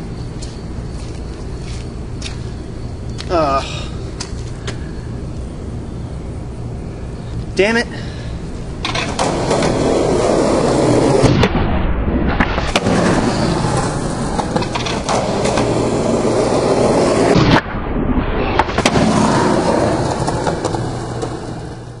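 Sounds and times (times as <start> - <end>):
skateboard wheels rolling on concrete: 0.0 - 6.5, 7.1 - 11.5, 12.4 - 17.6, 18.4 - 22.0
skateboard clacks: 8.8 - 11.3, 12.6 - 17.4, 18.6 - 22.0.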